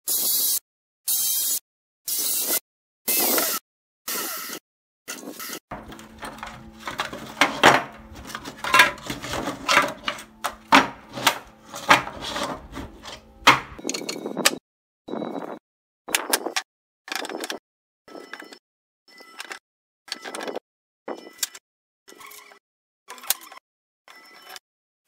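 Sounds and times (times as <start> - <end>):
plastic slats knocking together: 5.7 - 13.8.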